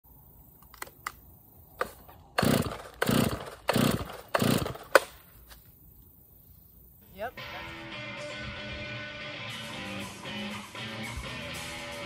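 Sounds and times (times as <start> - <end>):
chainsaw recoil starter pulls: 1.8 - 5.1.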